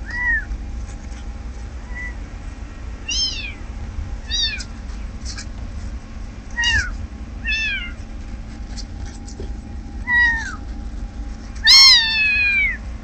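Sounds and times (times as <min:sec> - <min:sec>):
kitten mewing: 0:00.0 - 0:00.5, 0:01.8 - 0:02.2, 0:03.0 - 0:03.6, 0:04.2 - 0:05.5, 0:06.5 - 0:08.1, 0:09.0 - 0:10.8, 0:11.5 - 0:12.8.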